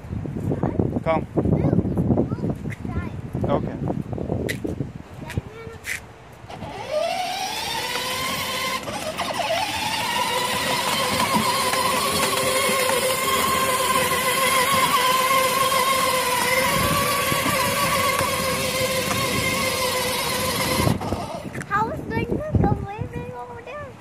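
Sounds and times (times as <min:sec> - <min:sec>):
electric toy motor whining: 0:06.5 - 0:21.7.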